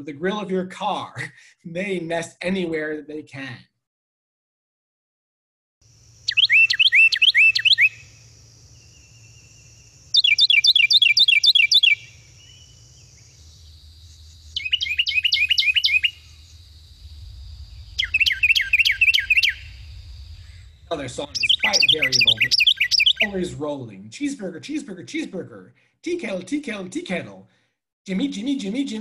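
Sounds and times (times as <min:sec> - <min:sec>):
wren singing: 0:06.2 - 0:23.5.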